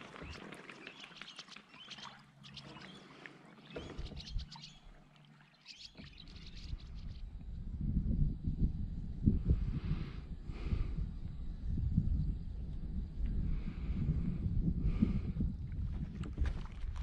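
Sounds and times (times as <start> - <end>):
paddle strokes splashing water: 0.0 - 6.7, 15.7 - 17.0
bird chirps: 0.2 - 4.9, 5.6 - 7.3.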